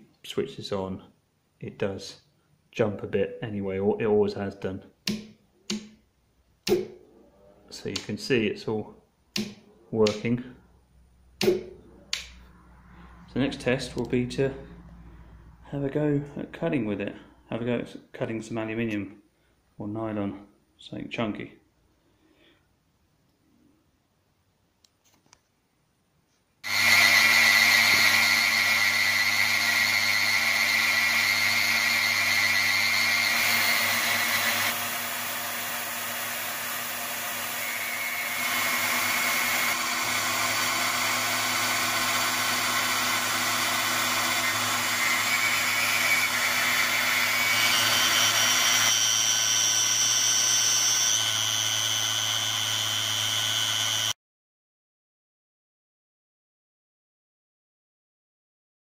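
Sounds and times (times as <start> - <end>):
milling machine whine: 26.6 - 54.2.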